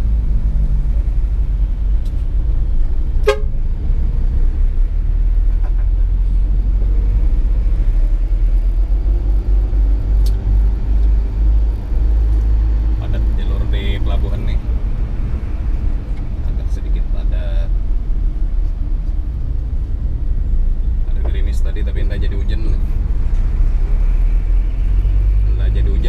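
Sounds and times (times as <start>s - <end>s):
diesel truck engine droning: 0.0s - 26.0s
truck horn toot: 3.2s - 3.6s.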